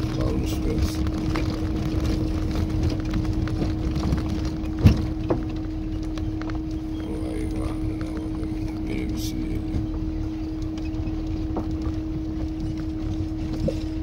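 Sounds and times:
car engine rumbling: 0:00.0 - 0:14.0
car jolting knocks: 0:01.1 - 0:05.8.

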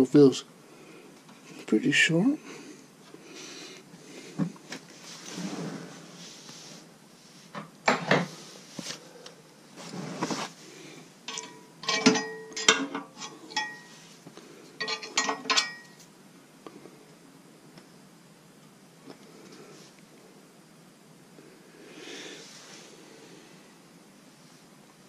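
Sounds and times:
wrench clinking against metal: 0:11.3 - 0:13.9, 0:14.8 - 0:16.0.

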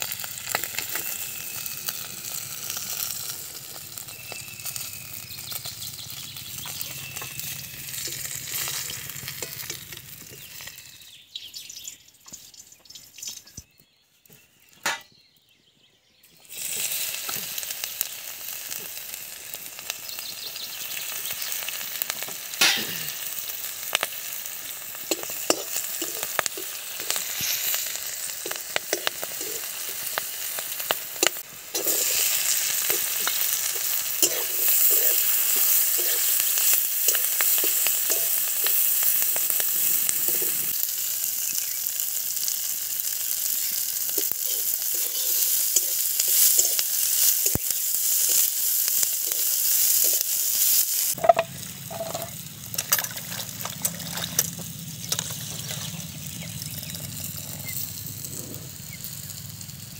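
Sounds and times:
oil sizzling in a wok: 0:00.0 - 0:13.6, 0:16.3 - 0:59.9
metal spatula scraping a pan: 0:31.2 - 0:39.1, 0:44.2 - 0:56.0.

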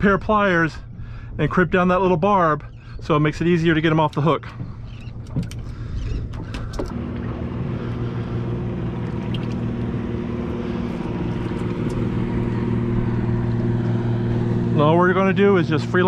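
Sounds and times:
outboard motor running: 0:00.0 - 0:16.0
fishing tackle clicks and knocks: 0:03.9 - 0:07.0.

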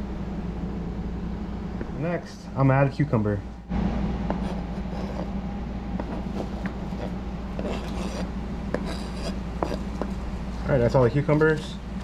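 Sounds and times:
low hum: 0:00.0 - 0:12.0
knife scraping cutting board: 0:04.3 - 0:05.4, 0:06.0 - 0:10.6.

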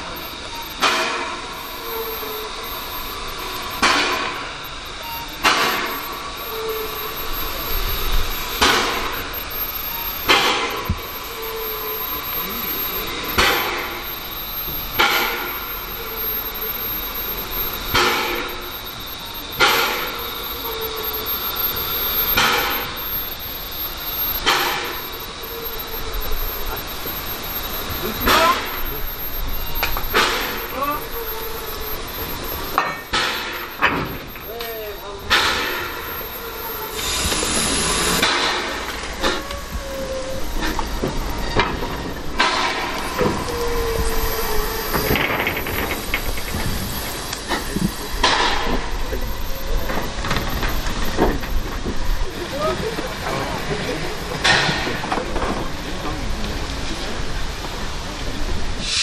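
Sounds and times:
steam hissing: 0:00.0 - 0:59.0
steam puffs with metallic clank: 0:02.5 - 0:11.2, 0:17.4 - 0:23.0, 0:23.6 - 0:25.4, 0:58.7 - 0:59.0.

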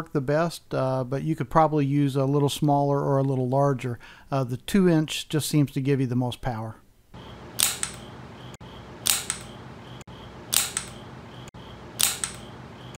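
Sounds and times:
light click: 0:07.6 - 0:08.1, 0:09.0 - 0:09.6, 0:10.5 - 0:11.0, 0:12.0 - 0:12.5
rubber band pistol snap: 0:07.6 - 0:08.1, 0:09.0 - 0:09.6, 0:10.5 - 0:11.0, 0:12.0 - 0:12.5.

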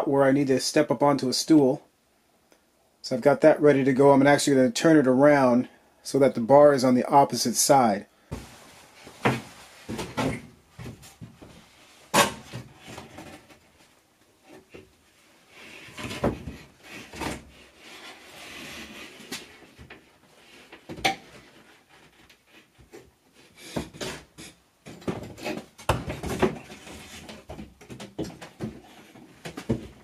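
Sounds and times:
drywall scraping on wood: 0:15.5 - 0:19.8, 0:23.3 - 0:27.7.

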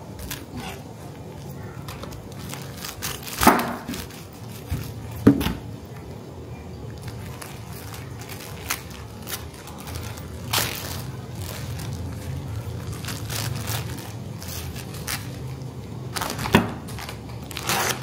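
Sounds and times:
plastic wrapping rustling: 0:00.0 - 0:18.0.

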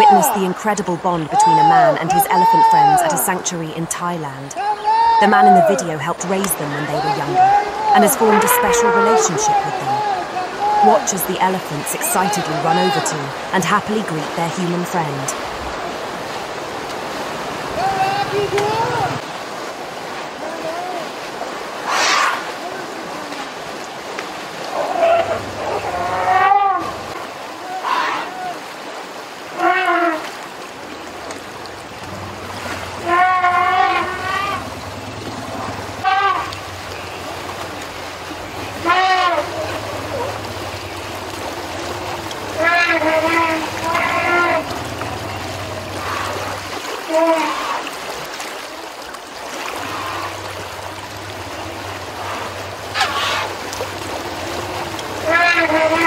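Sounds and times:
running water: 0:00.0 - 0:56.0
elephants trumpeting: 0:07.0 - 0:11.1, 0:21.8 - 0:22.6, 0:24.7 - 0:28.5, 0:29.5 - 0:30.2, 0:32.1 - 0:37.2, 0:38.1 - 0:47.8, 0:49.8 - 0:50.6, 0:51.2 - 0:56.0.

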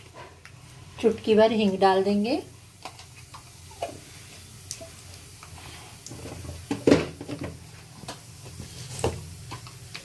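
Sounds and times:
spices frying in hot oil: 0:00.0 - 0:10.0.

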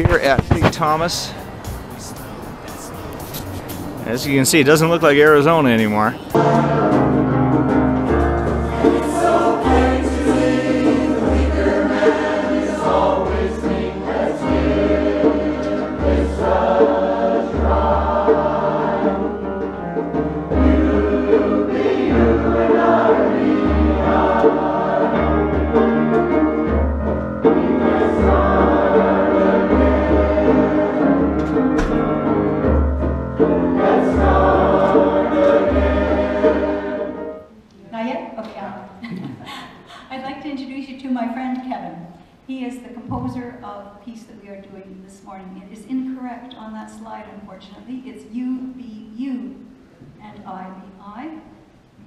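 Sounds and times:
mixed choir singing: 0:06.2 - 0:26.8, 0:27.4 - 0:37.6.

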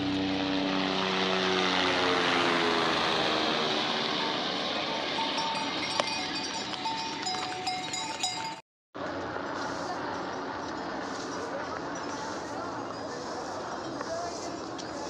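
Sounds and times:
small bells ringing: 0:04.0 - 0:08.6.

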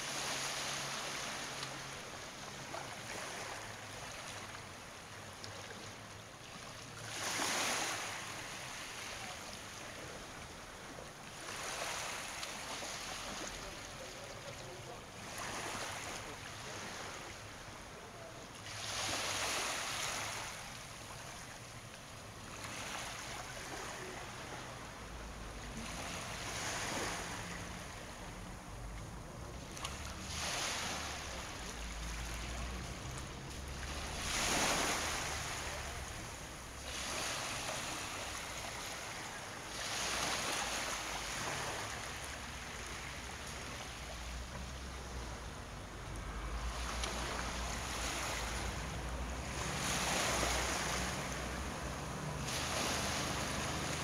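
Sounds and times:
small waves washing ashore: 0:00.0 - 0:54.0.

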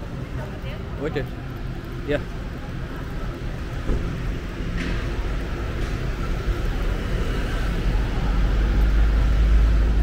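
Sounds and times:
cars and motorbikes passing: 0:00.0 - 0:10.0.

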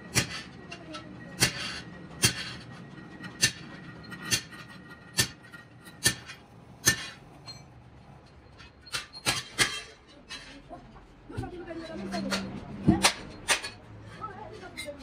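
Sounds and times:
sharp metallic knocks: 0:01.4 - 0:10.1, 0:12.2 - 0:13.8.

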